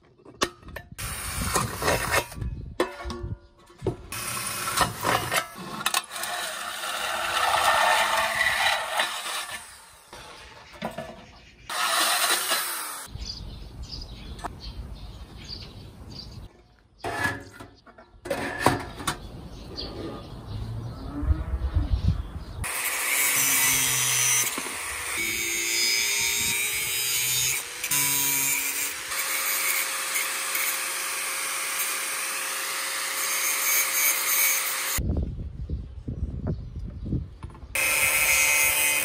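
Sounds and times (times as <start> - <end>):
metal pans being handled: 2.8 - 4.0, 17.0 - 19.2
angle grinder cutting metal: 4.1 - 10.2, 11.7 - 13.1, 22.6 - 35.0, 37.8 - 39.0.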